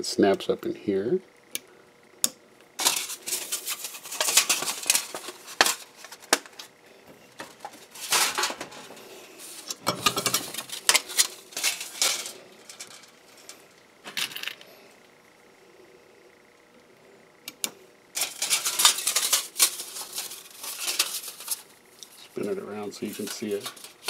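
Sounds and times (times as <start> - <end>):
metal sheet clinking and rattling: 2.8 - 6.3, 7.4 - 8.9, 9.8 - 13.5, 18.2 - 21.7, 22.4 - 24.0.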